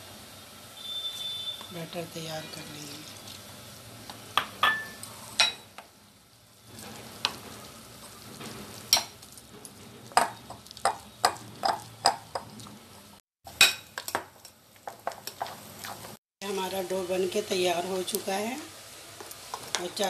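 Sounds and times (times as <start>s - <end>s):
spoon clinking against glass bowl: 4.4s - 5.6s.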